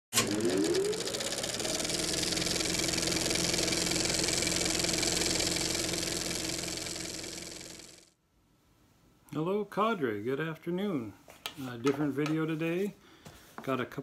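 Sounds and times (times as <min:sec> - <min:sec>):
engine-like hum: 0:00.2 - 0:08.2.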